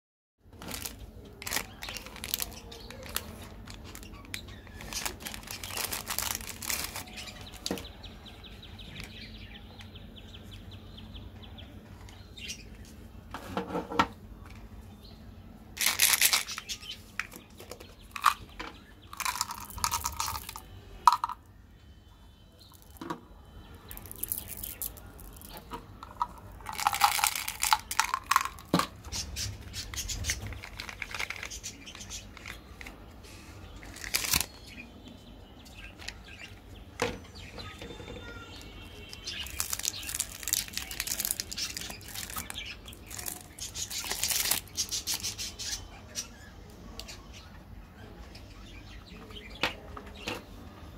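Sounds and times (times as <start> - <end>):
plastic wrappers crinkling: 0.5 - 7.8, 15.8 - 21.4, 23.9 - 29.2, 30.0 - 33.0, 33.8 - 34.8, 39.0 - 45.5
clicks and taps from packets: 0.6 - 7.9, 15.8 - 21.4, 23.9 - 29.2, 29.8 - 33.0, 33.8 - 34.6, 38.3 - 45.3.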